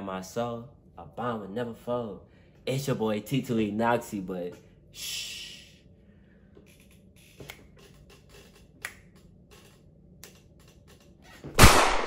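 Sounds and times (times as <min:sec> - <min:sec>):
faint clicks and taps at desk: 0:06.6 - 0:11.2.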